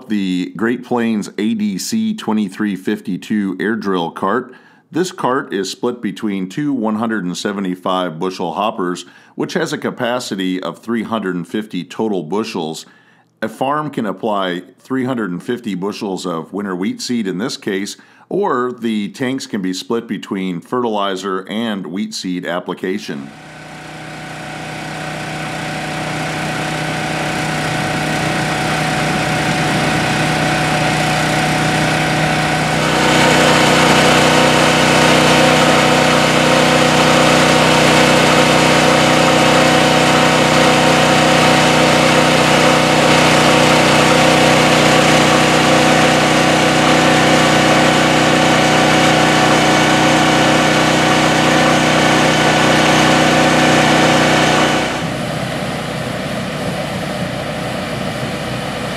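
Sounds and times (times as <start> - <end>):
engine running: 23.3 - 58.9.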